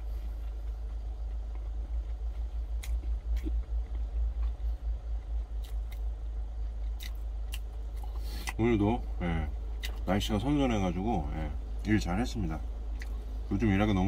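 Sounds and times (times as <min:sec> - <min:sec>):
person chewing food: 0:00.0 - 0:08.6, 0:09.4 - 0:10.1, 0:12.9 - 0:13.3
low uneven rumble: 0:00.0 - 0:14.0.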